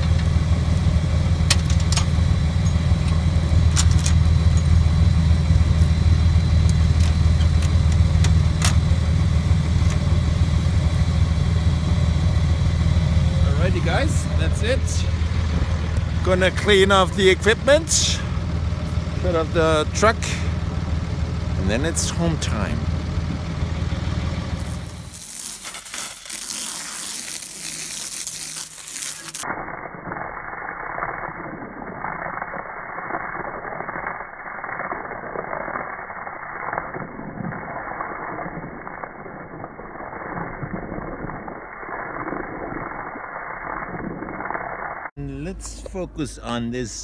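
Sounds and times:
low engine hum: 0.0s - 25.2s
water spray hissing: 24.6s - 29.5s.

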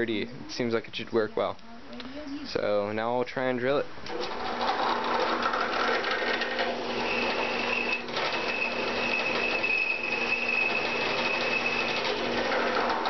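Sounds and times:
drill press motor hum: 4.0s - 13.0s
high-pitched squeal: 6.9s - 12.2s.

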